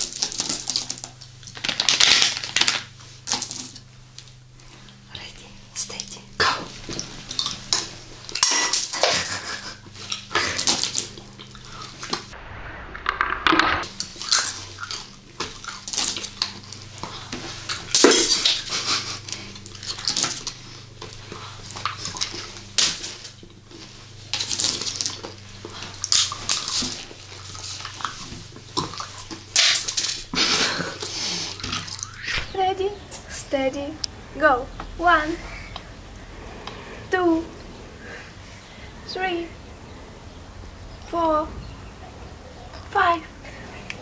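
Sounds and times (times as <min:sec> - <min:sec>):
people chewing candy: 0:00.0 - 0:12.3, 0:13.8 - 0:32.5.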